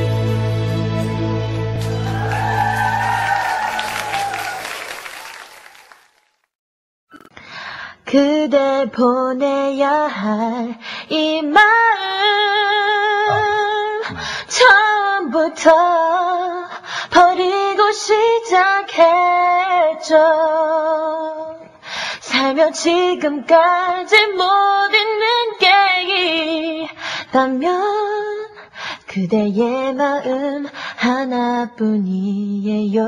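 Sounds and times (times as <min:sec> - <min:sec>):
singer breathing: 0:07.4 - 0:08.0, 0:14.0 - 0:14.5, 0:16.7 - 0:17.1, 0:21.7 - 0:22.2, 0:26.9 - 0:27.3, 0:28.6 - 0:29.1
woman singing unaccompanied: 0:08.1 - 0:21.6, 0:22.3 - 0:33.0.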